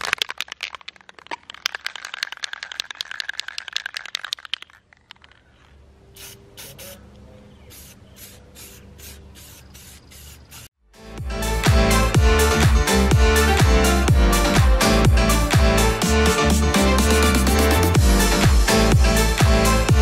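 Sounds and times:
spray can rattling: 0:00.0 - 0:05.6, 0:06.2 - 0:07.0, 0:07.7 - 0:10.8
spray can hissing: 0:06.1 - 0:07.0, 0:07.6 - 0:10.8.

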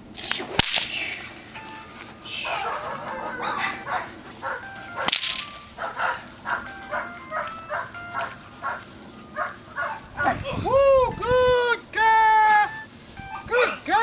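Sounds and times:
sharp crack: 0:00.2 - 0:01.3, 0:05.0 - 0:05.6
puppy barking: 0:02.4 - 0:05.2, 0:05.8 - 0:10.4.

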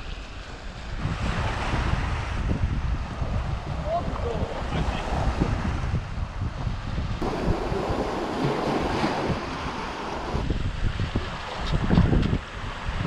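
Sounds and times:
wind buffeting microphone: 0:00.0 - 0:13.0
sea surf washing over rocks: 0:07.2 - 0:13.0.

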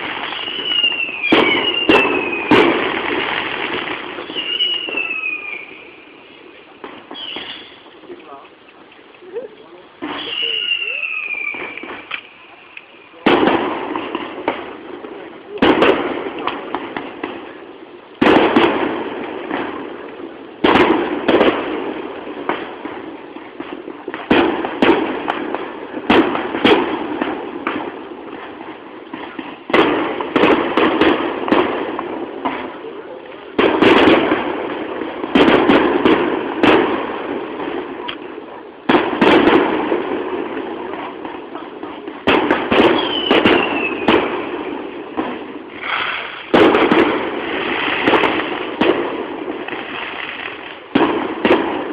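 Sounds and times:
falling firework whistle: 0:00.0 - 0:02.8, 0:04.2 - 0:06.4, 0:07.1 - 0:07.9, 0:10.1 - 0:12.9, 0:42.8 - 0:44.4
firework shells bursting: 0:00.0 - 0:09.3, 0:10.0 - 0:32.8, 0:33.4 - 0:51.9
firework crackle: 0:00.0 - 0:51.9.

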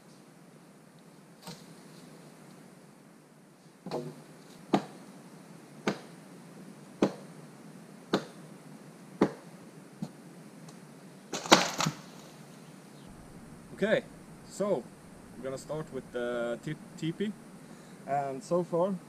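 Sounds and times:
wooden branches knocking and cracking: 0:11.3 - 0:12.2.

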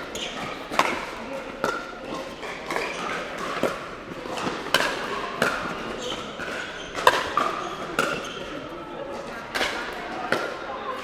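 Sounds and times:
ball bouncing on court: 0:00.1 - 0:08.4.

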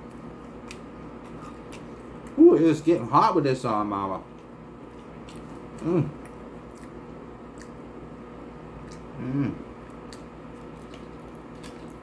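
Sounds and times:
man humming mm: 0:09.1 - 0:09.7.

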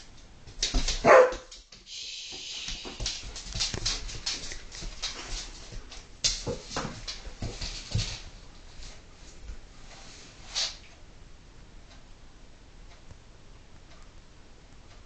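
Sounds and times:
dogs scuffling: 0:00.0 - 0:10.8
claws clicking on tiled floor: 0:00.1 - 0:08.2
dog barking: 0:01.0 - 0:01.5.

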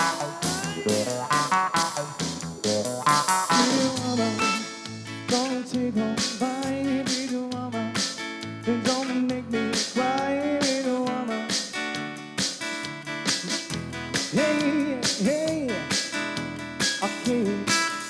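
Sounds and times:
sliding melody line: 0:00.0 - 0:04.8
acoustic guitar: 0:00.0 - 0:18.0
drum kit with cymbals: 0:00.0 - 0:18.0.

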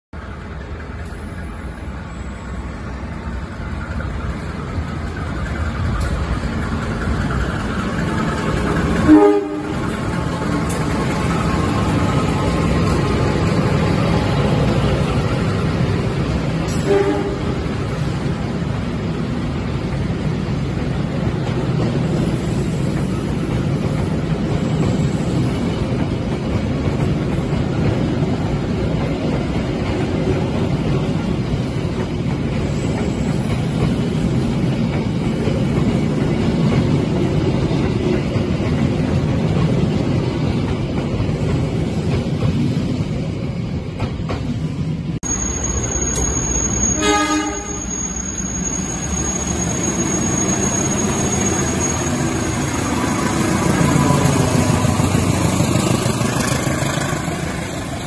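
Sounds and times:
train rumbling past: 0:00.2 - 0:58.0
train horn blast: 0:09.0 - 0:09.9, 0:16.7 - 0:17.7, 0:46.9 - 0:47.9.

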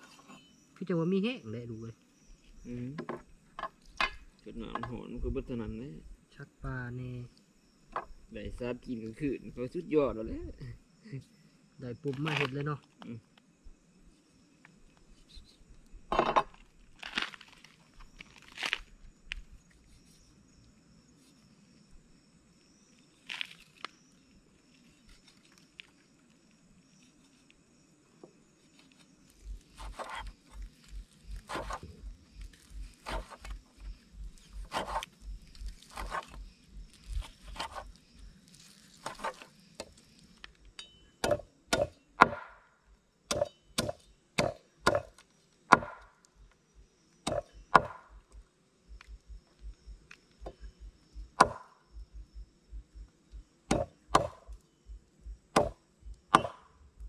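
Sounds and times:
knife chopping on wooden board: 0:31.5 - 0:31.9, 0:33.0 - 0:33.5, 0:34.6 - 0:35.1, 0:41.2 - 0:42.5, 0:43.3 - 0:45.1, 0:45.7 - 0:46.0, 0:47.3 - 0:48.0, 0:51.4 - 0:51.6, 0:53.7 - 0:54.5, 0:55.5 - 0:56.7.

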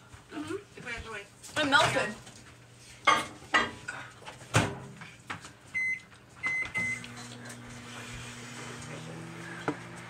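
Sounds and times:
microwave humming: 0:05.7 - 0:10.0
microwave keypad beeping: 0:05.8 - 0:07.1.

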